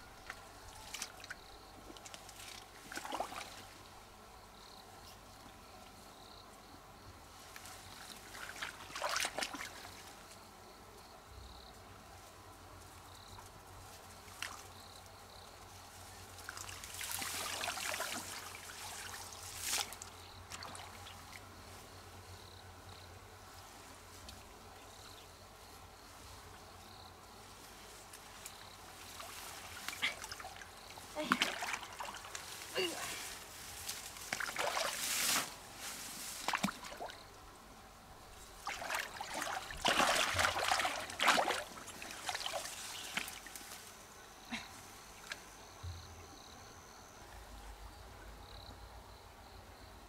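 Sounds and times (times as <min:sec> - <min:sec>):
faint high insect chirp: 0:00.0 - 0:50.0
water trickling and splashing: 0:00.2 - 0:03.8, 0:08.0 - 0:10.1, 0:16.4 - 0:21.4, 0:29.0 - 0:35.5, 0:36.2 - 0:37.4, 0:38.3 - 0:43.6.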